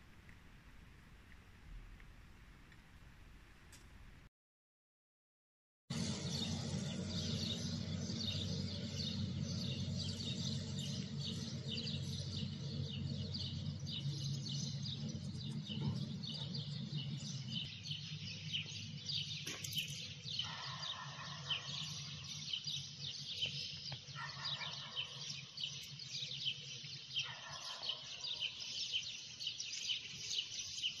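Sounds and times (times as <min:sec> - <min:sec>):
low hum: 0:05.9 - 0:20.5
longer bird calls: 0:05.9 - 0:31.0
small birds chirping: 0:05.9 - 0:31.0.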